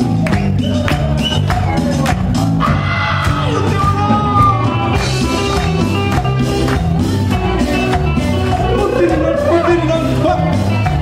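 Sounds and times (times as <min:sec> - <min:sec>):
live band playing dance music: 0:00.0 - 0:11.0.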